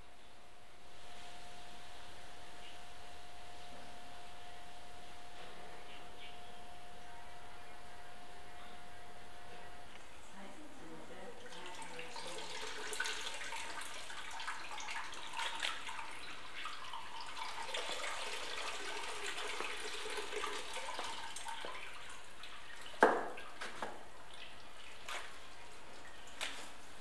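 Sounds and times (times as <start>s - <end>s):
liquid trickling and dripping: 11.3s - 27.0s.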